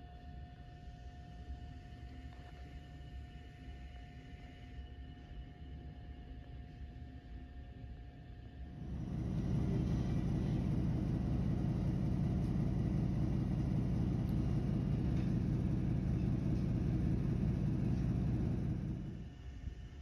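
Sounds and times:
steady low rumble: 0:08.7 - 0:19.5.

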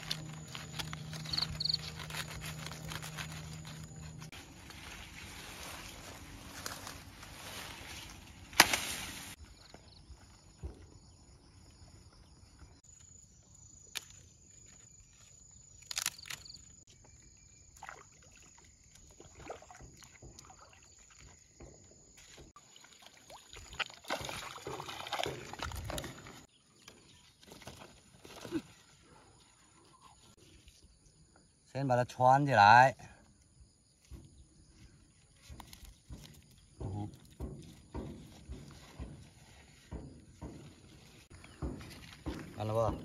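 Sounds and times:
reed leaves rustling: 0:00.0 - 0:10.5
water sloshing: 0:17.7 - 0:26.5.

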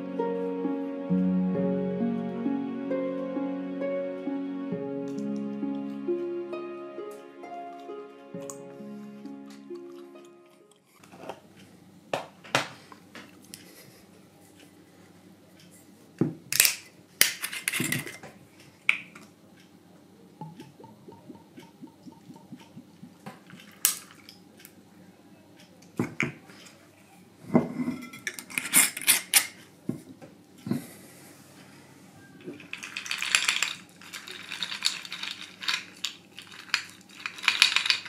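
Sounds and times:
glass and ice clinking: 0:20.4 - 0:23.9, 0:32.5 - 0:38.0
liquid pouring from a bottle: 0:20.4 - 0:24.3.

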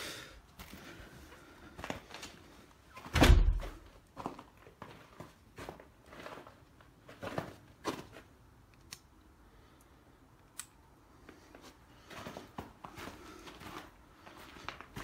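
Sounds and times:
footsteps scuffing: 0:03.0 - 0:08.4, 0:11.5 - 0:15.0.

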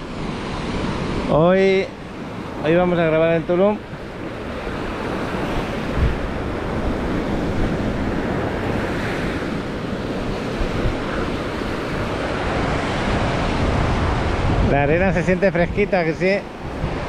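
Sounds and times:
small waves breaking on sand: 0:00.0 - 0:17.0
wind buffeting microphone: 0:03.7 - 0:17.0.

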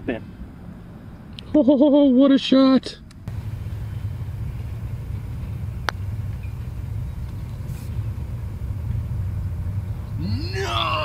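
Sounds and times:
steady low rumble: 0:03.2 - 0:11.0
putter striking golf ball: 0:04.6 - 0:08.1.

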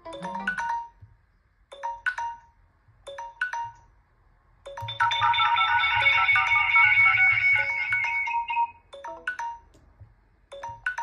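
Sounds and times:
phone ringtone: 0:00.0 - 0:01.0, 0:04.7 - 0:09.7
phone timer alert: 0:00.0 - 0:01.1, 0:01.7 - 0:03.9, 0:04.7 - 0:09.8, 0:10.5 - 0:11.0.

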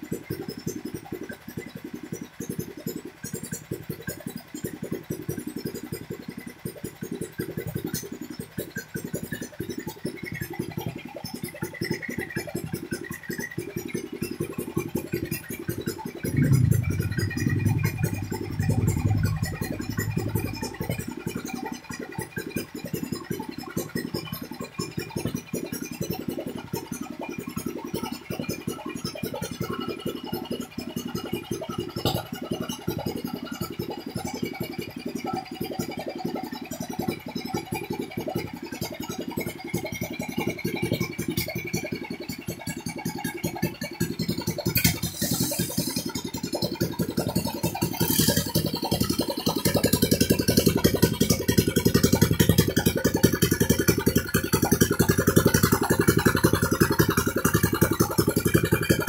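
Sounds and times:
gasoline engine running: 0:16.2 - 0:21.6, 0:49.3 - 0:59.0.

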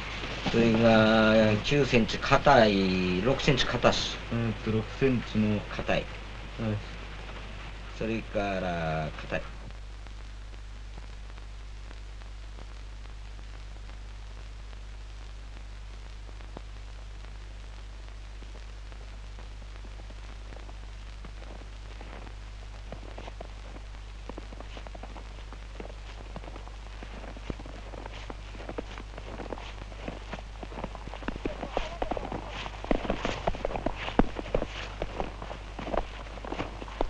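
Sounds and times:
boots crunching in deep snow: 0:00.0 - 0:04.0, 0:20.6 - 0:37.0
constant low hum: 0:00.0 - 0:37.0.

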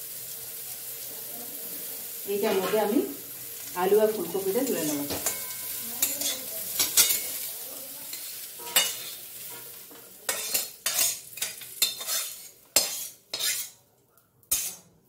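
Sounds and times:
food sizzling in a pan: 0:00.0 - 0:15.0
metal spatula scraping and knocking: 0:04.8 - 0:07.3, 0:08.2 - 0:13.8, 0:14.5 - 0:14.9.

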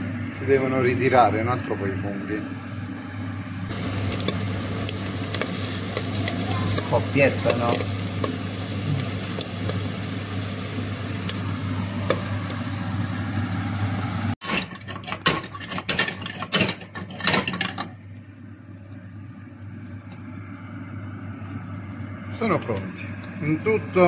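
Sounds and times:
steady low hum: 0:00.0 - 0:14.4, 0:17.6 - 0:24.0
mushrooms sizzling in a pan: 0:03.7 - 0:14.4.

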